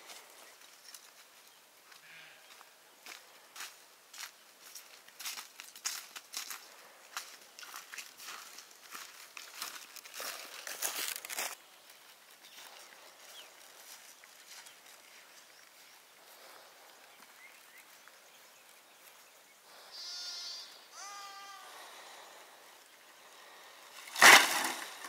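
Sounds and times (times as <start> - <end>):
faint background noise: 0.0 - 25.0
sheep bleating: 19.9 - 21.9.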